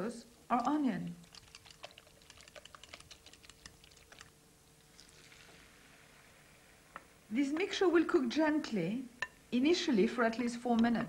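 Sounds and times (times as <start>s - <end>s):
soft hiss of food frying: 0.0s - 11.0s
hot fat crackling in frying pan: 0.5s - 6.4s.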